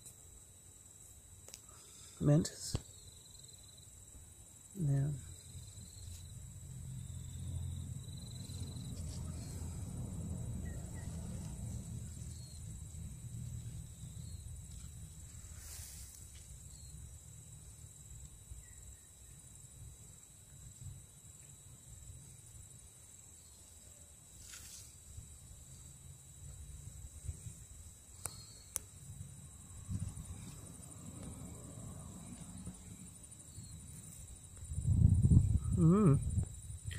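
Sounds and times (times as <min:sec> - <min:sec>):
steady high-pitched whine: 0:00.0 - 0:36.9
leaves rustling: 0:08.4 - 0:16.8, 0:23.5 - 0:26.0
low microphone rumble: 0:34.6 - 0:36.9.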